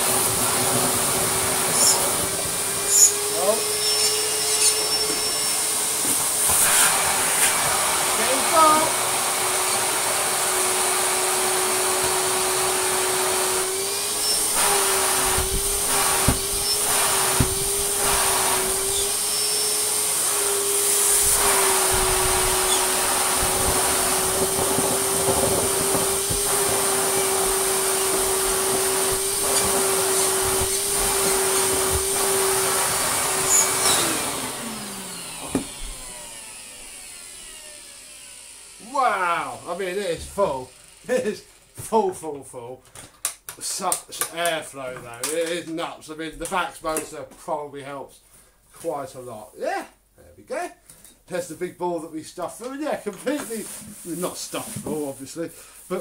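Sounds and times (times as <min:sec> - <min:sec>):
vacuum motor winding down: 0:00.0 - 0:41.4
vacuum cleaner whining: 0:00.0 - 0:42.0, 0:52.6 - 0:56.0
knocks in vacuum: 0:15.2 - 0:17.7, 0:35.4 - 0:35.8.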